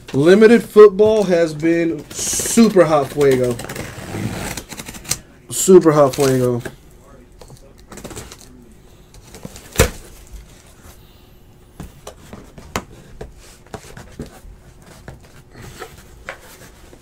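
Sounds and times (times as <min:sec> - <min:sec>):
cardboard boxes tapping and knocking: 0:11.8 - 0:17.0.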